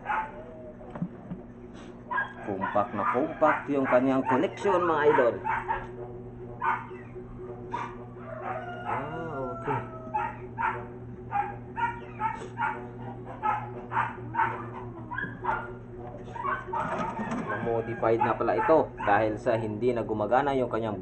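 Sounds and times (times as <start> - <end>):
dog barking: 0.0 - 0.5, 2.1 - 6.0, 6.6 - 7.1, 7.7 - 19.3
steady low hum: 0.0 - 21.0.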